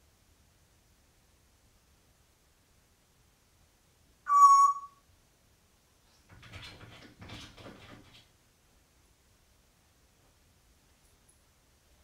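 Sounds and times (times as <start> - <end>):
parrot whistle: 4.3 - 5.0.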